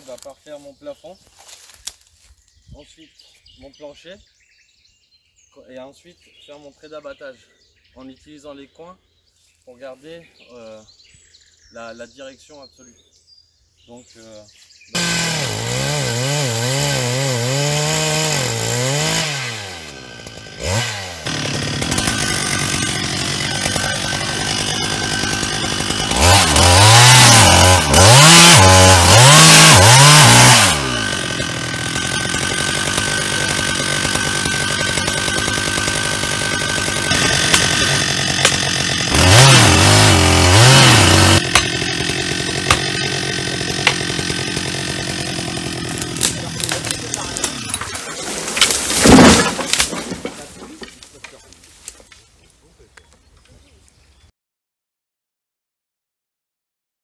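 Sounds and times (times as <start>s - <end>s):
chainsaw cutting wood: 15.0s - 52.0s.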